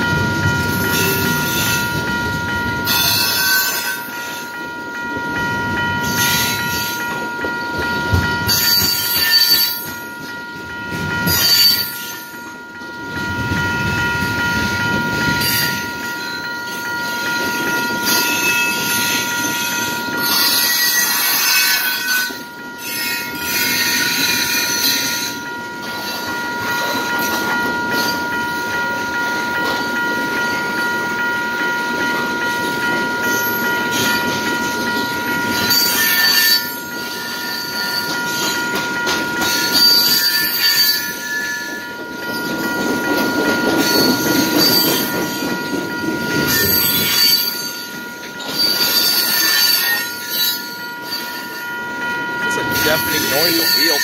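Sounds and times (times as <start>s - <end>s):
crossing electronic bell: 0.0s - 54.0s
train wheels rumbling on rails: 0.0s - 54.0s
wheel squeal: 35.5s - 36.7s, 39.4s - 41.7s, 48.4s - 51.5s.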